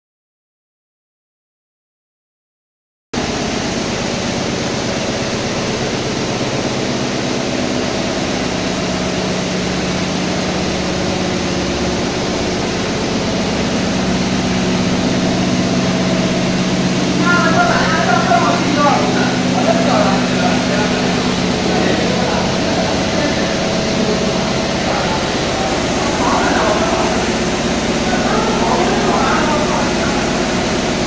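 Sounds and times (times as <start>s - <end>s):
fan rushing: 3.2s - 31.0s
machine hum: 3.2s - 31.0s.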